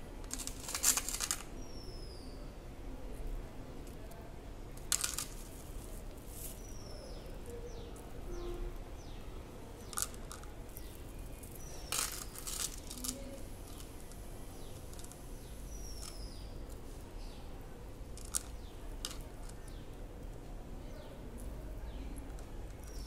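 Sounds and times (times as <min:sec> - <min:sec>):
beads and chain clicking: 0:00.3 - 0:01.5, 0:11.4 - 0:13.9.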